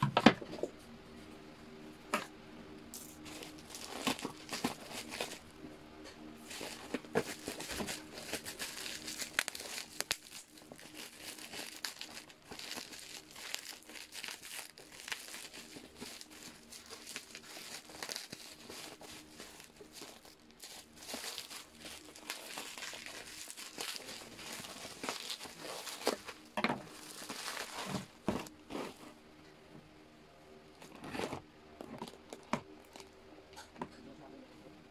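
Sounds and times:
bubble wrap crinkling: 3.0 - 5.6, 6.4 - 29.2, 30.8 - 33.2.

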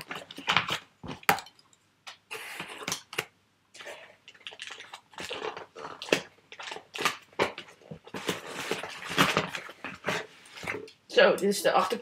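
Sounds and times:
packaging crinkling: 2.6 - 10.9.

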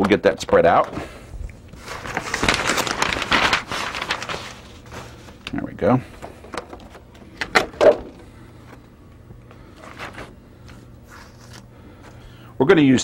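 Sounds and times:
newspaper rustling: 1.7 - 7.2, 9.6 - 12.2.

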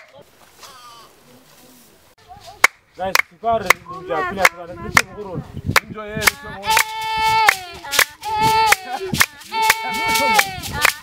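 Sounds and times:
women singing long held notes: 6.3 - 11.0
sharp handclaps: 8.7 - 11.0.

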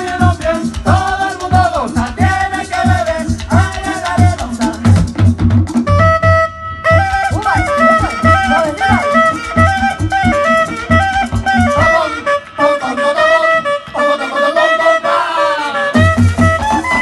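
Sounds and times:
hand drum strokes: 3.1 - 12.1
folk flute melody: 5.8 - 17.0.

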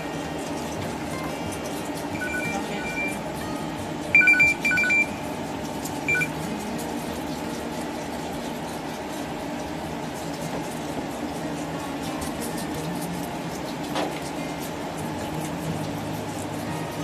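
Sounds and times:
low background hum: 0.0 - 17.0
short high-pitched beeps: 2.2 - 3.2, 4.1 - 5.2, 6.1 - 6.3.

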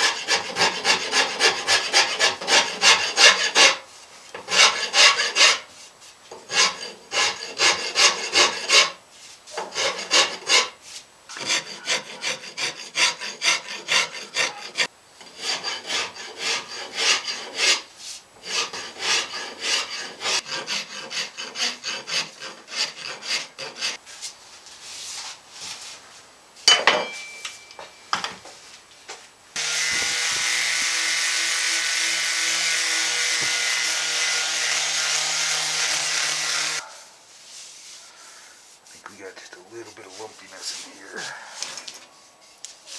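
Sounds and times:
hand rasp carving wood: 0.0 - 3.8, 4.4 - 5.7, 6.5 - 24.0.

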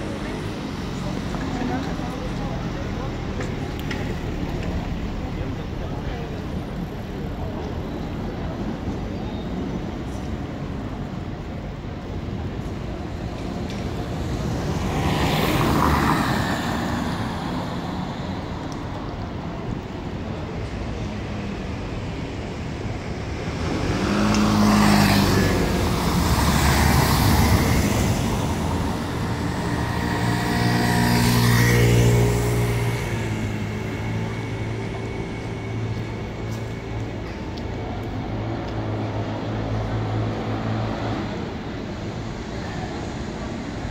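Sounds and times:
vehicle passing by: 23.5 - 36.4.

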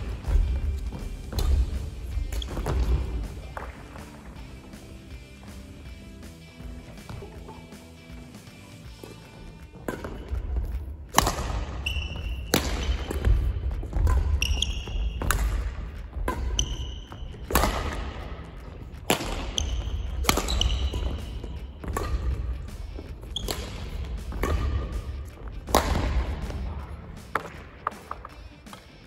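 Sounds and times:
racket striking shuttlecock: 0.0 - 4.2, 9.0 - 28.9
shoe squeaks on court: 0.2 - 3.4, 11.4 - 25.3.

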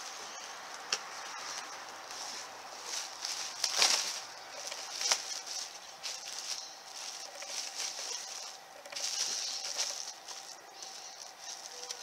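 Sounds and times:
plastic bag crinkling: 3.4 - 12.0.

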